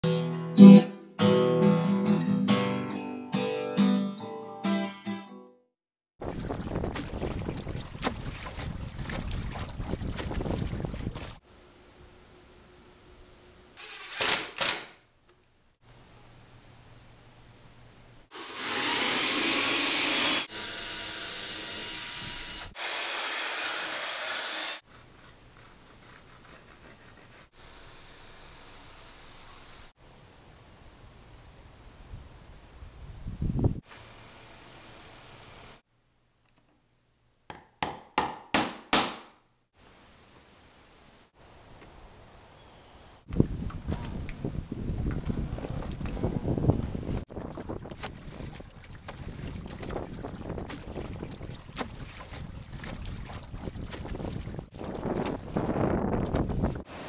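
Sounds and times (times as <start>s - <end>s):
acoustic guitar chords: 0.0s - 5.6s
wind noise on microphone: 6.2s - 11.4s, 31.9s - 33.9s, 43.3s - 56.9s
water: 6.2s - 11.6s, 43.3s - 56.6s
power sander rasping on wood: 18.3s - 24.8s.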